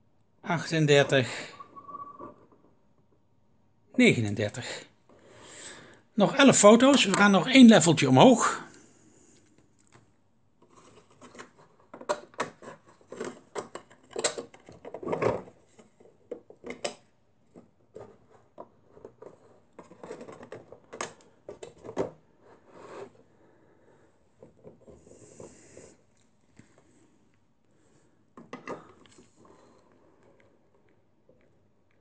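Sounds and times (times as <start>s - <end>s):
hard plastic objects clicking and knocking: 28.4s - 29.6s.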